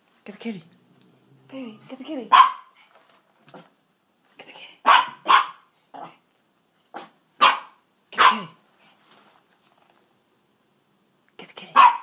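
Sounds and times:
small dog barking: 0:02.3 - 0:02.8, 0:04.8 - 0:06.2, 0:06.9 - 0:08.6, 0:11.7 - 0:12.0.

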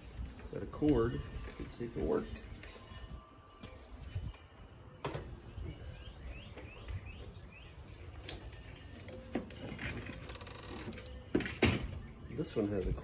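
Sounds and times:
bird chirping rising notes: 0:04.2 - 0:09.1.

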